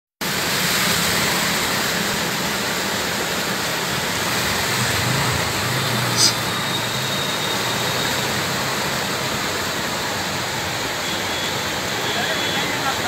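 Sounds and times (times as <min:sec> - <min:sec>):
water spray from tyres: 0:00.2 - 0:13.0
air rush: 0:04.8 - 0:06.7.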